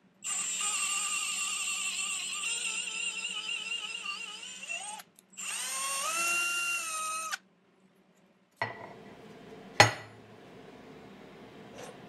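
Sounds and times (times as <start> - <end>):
steel plate clunk on table: 8.6 - 8.9, 9.8 - 10.2.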